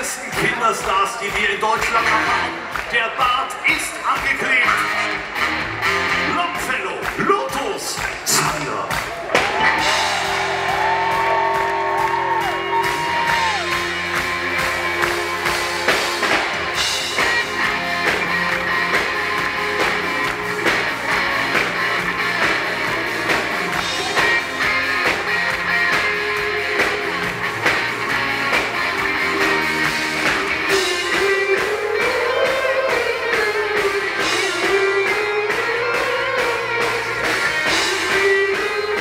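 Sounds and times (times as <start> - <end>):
live rock band playing: 0.0 - 39.0
steady drum beat: 0.0 - 39.0
electric guitar: 7.8 - 39.0.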